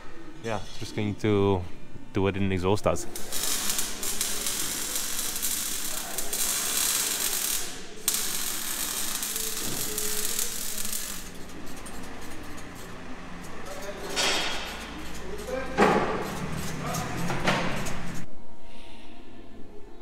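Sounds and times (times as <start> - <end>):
harsh tool hiss: 3.2 - 11.3.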